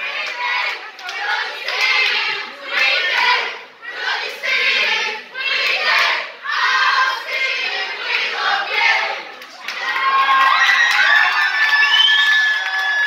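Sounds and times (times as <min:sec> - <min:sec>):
crowd of young voices chanting: 0:00.0 - 0:10.1.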